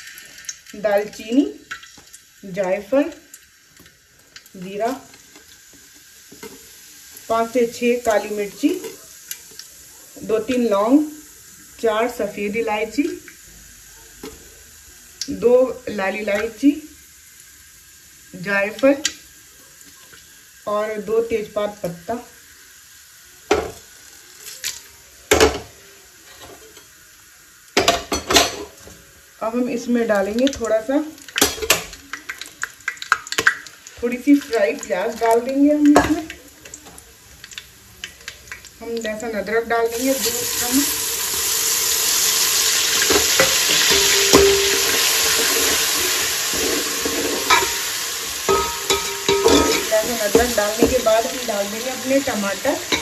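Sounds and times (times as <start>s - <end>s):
spices sizzling in oil: 0.0s - 53.0s
metal spoon clanking on pot: 43.1s - 45.0s, 47.4s - 47.8s, 48.5s - 51.1s
spoon scraping pot: 43.1s - 47.8s, 48.5s - 51.3s.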